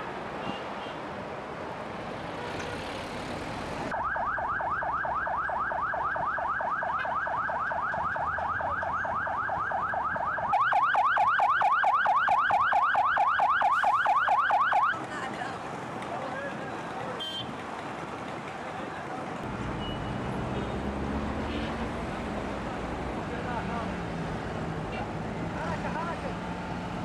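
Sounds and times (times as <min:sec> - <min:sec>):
street traffic: 0:00.0 - 0:27.0
electronic siren yelping: 0:03.9 - 0:14.9.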